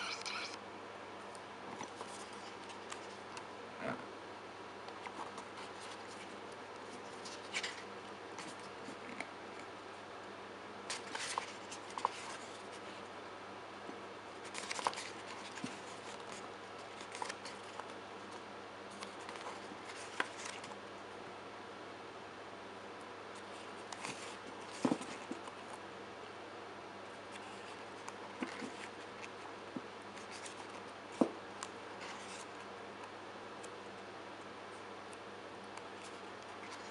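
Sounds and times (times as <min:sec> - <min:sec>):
photobook pages turning: 0:05.0 - 0:09.3, 0:10.9 - 0:13.0, 0:14.4 - 0:20.8, 0:23.4 - 0:25.8, 0:27.2 - 0:29.4, 0:30.1 - 0:32.7, 0:36.0 - 0:36.9.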